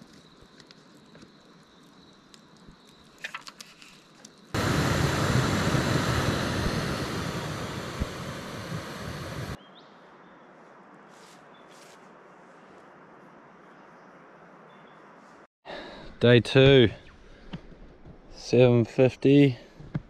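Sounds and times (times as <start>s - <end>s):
gas stove hissing: 4.6s - 9.6s.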